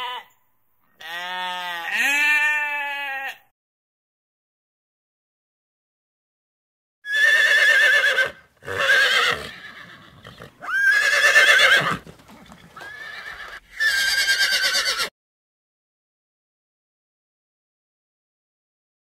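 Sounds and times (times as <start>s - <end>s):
horses neighing: 7.1s - 15.1s.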